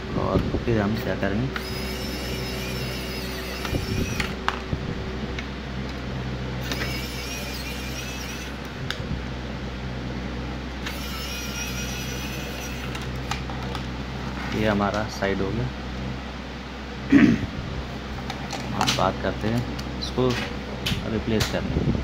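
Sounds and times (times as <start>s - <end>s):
steady low hum: 0.0s - 22.0s
electric screwdriver whining: 1.6s - 4.5s, 6.6s - 8.8s, 10.8s - 13.2s.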